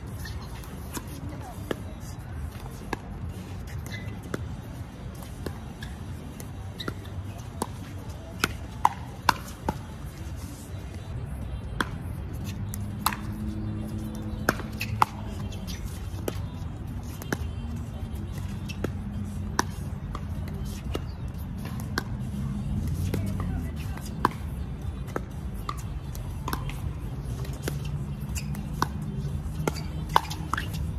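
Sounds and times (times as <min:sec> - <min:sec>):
paddles hitting pickleball: 0:28.4 - 0:30.8.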